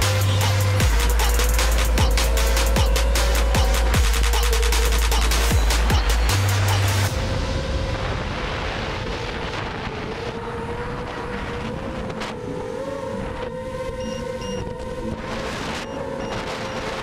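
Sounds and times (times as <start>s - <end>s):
wind rushing on microphone: 7.1s - 17.0s
drone motors whining: 9.7s - 17.0s.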